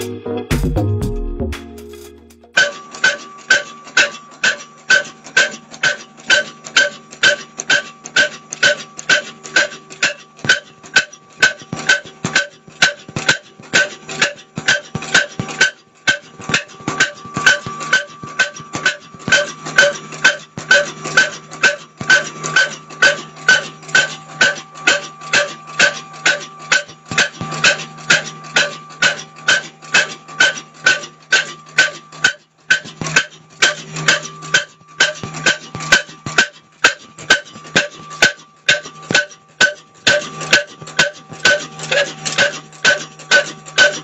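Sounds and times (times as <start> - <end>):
background music with punchy beat: 0.0 - 2.6.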